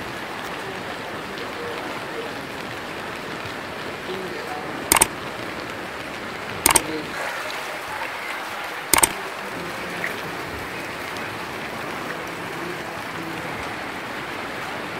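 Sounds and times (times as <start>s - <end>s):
rain and floodwater rushing: 0.0s - 14.9s
sharp clicks: 4.9s - 5.1s, 6.7s - 6.9s, 9.0s - 9.2s.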